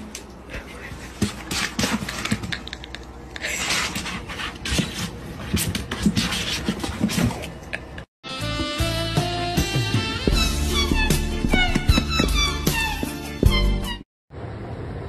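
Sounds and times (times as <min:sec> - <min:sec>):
music: 0:08.2 - 0:14.1.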